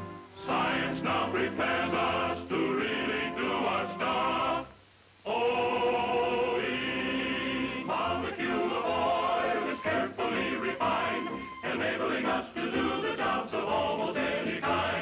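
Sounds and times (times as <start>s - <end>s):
choir singing: 0.0s - 15.0s.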